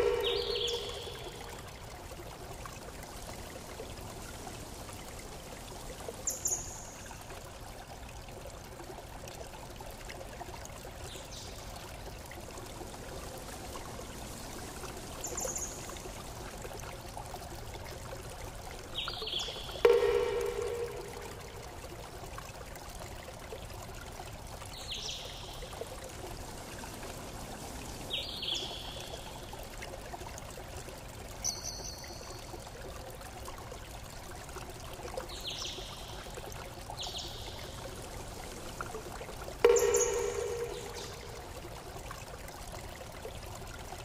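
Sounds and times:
short ringing sound: 39.7s - 41.4s.

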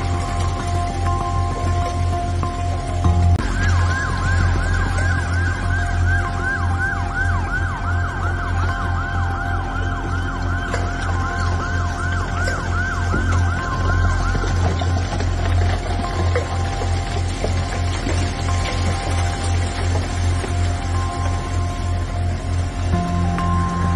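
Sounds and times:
siren yelping: 3.3s - 16.9s.

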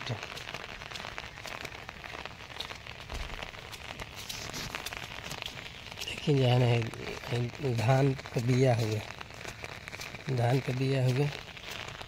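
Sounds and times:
rain pattering on umbrella: 0.0s - 12.0s.

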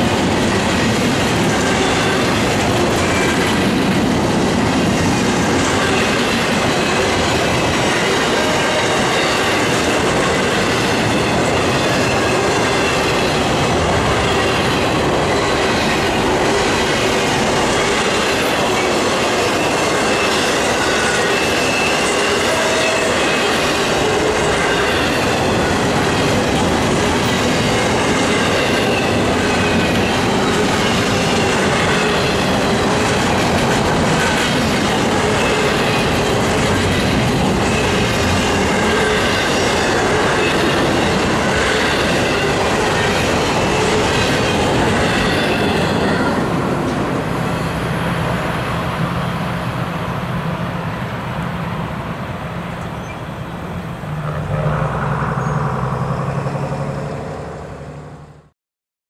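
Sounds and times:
train wheels rumbling and clattering: 0.0s - 58.4s
faint high wheel squeal: 52.7s - 53.5s, 55.4s - 55.8s.

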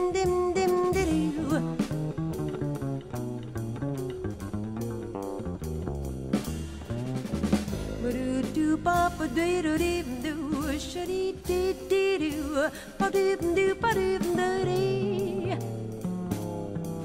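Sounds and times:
woman singing with vibrato: 0.0s - 1.8s, 8.0s - 15.7s
double bass: 0.0s - 17.0s
drums keeping a steady beat: 0.0s - 17.0s.

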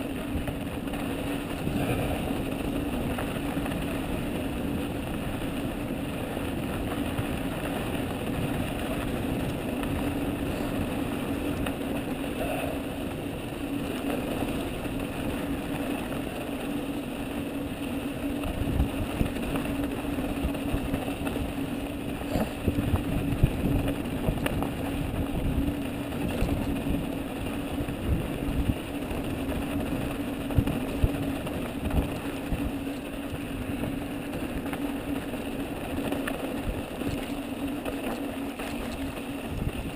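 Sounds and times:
bike rattling over bumps: 0.0s - 39.9s
bike tyres rolling on gravel: 0.0s - 39.9s.

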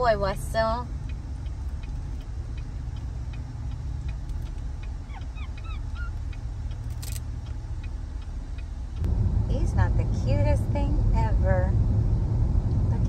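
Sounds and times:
road rumble inside moving car: 0.0s - 13.0s
faint regular ticking: 0.6s - 9.1s.

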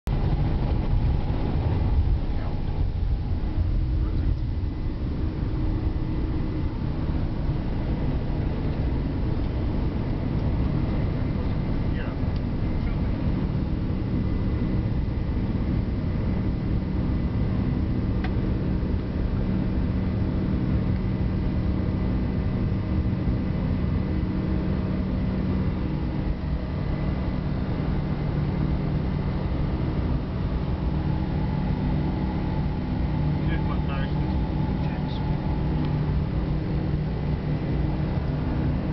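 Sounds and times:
low rumble: 0.0s - 38.9s
jet engine roar: 0.1s - 38.9s
faint high whine: 0.6s - 38.9s.

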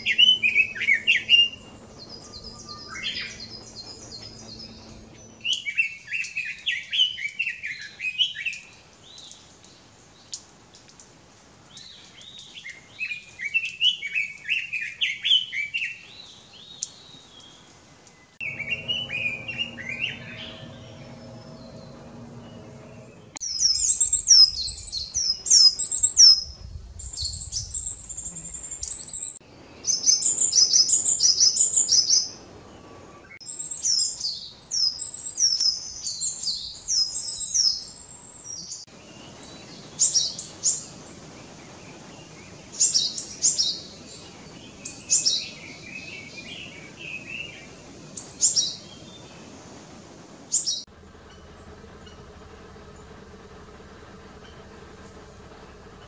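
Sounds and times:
faint steady hum: 0.0s - 6.1s, 18.4s - 56.0s
tit singing high falling notes: 18.4s - 23.4s.

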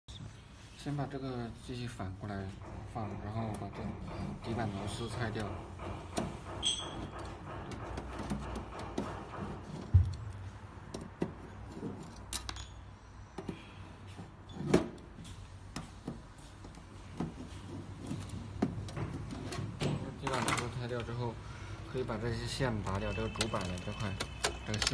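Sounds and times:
knock on metal enclosure: 2.5s - 10.4s.

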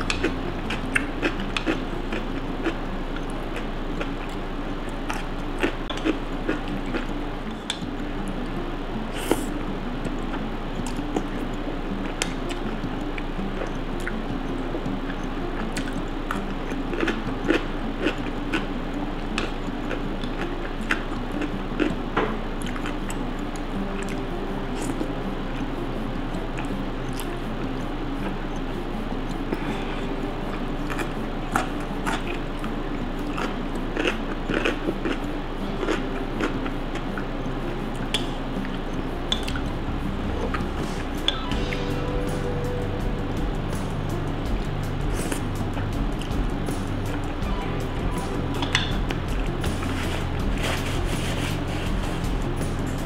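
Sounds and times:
person chewing: 0.0s - 7.9s, 9.1s - 12.8s, 15.1s - 22.0s, 22.6s - 24.2s, 29.5s - 37.3s, 37.9s - 44.2s, 45.0s - 46.4s, 47.1s - 52.3s
person slurping noodles: 9.1s - 9.5s.

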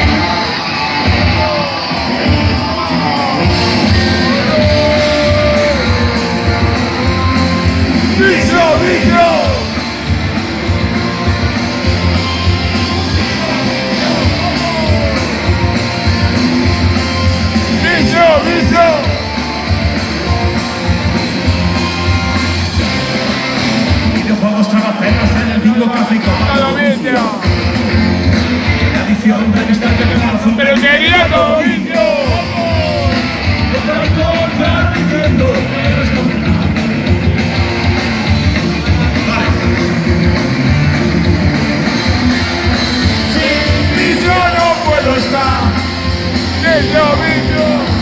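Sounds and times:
bass guitar: 0.0s - 48.0s
drums: 0.0s - 48.0s
electric guitars: 0.0s - 48.0s.

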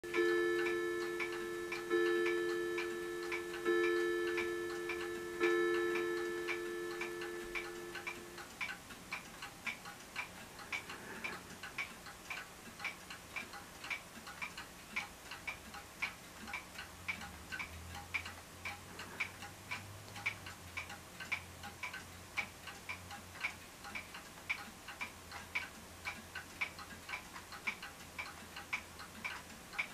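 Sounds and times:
two-note clock chime: 0.0s - 8.4s
clock ticking: 0.0s - 29.9s.

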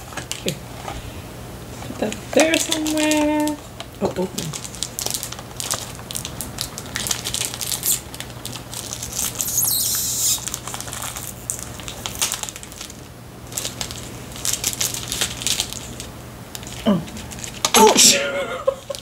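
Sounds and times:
snack packaging crinkling: 0.0s - 0.6s, 2.0s - 17.8s
plastic ripping: 2.4s - 3.7s, 4.3s - 17.8s.

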